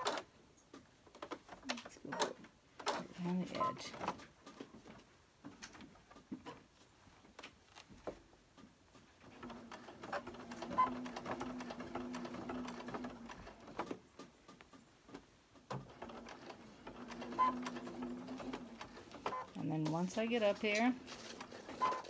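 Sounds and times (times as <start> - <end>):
sewing machine stitching: 9.2 - 14.0, 15.7 - 22.0.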